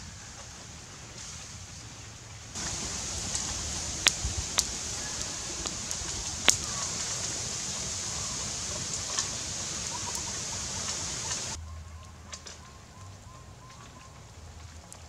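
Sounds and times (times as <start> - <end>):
fire crackling and hissing: 0.0 - 11.6
fire popping: 1.1 - 15.0.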